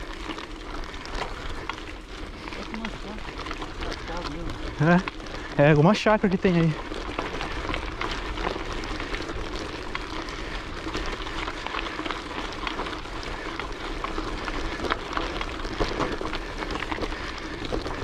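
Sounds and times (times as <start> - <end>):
bicycle rolling: 0.0 - 18.0
bicycle ticks and rattles: 0.0 - 18.0.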